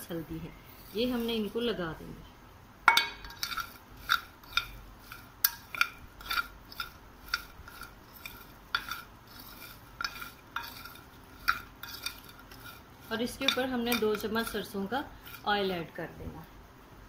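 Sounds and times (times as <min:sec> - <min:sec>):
spoon clinking against a bowl: 0:05.4 - 0:09.1, 0:10.0 - 0:15.4.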